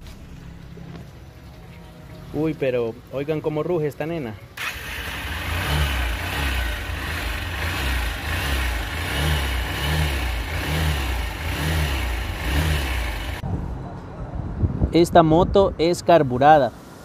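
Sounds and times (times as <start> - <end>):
motorcycle engine running: 4.6 - 13.4.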